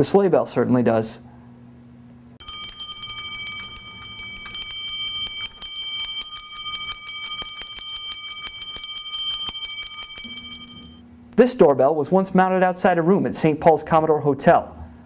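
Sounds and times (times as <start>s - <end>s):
sleigh bell ringing: 2.4s - 11.0s.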